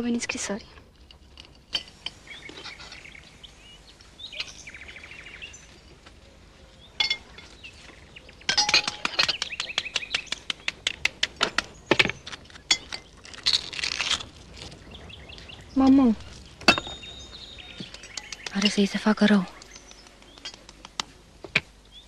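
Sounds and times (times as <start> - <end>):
birds chirping: 0.0 - 13.4, 14.4 - 22.0
bird trill: 2.2 - 10.4, 16.6 - 20.6
cutlery clinking on plates: 8.5 - 9.5.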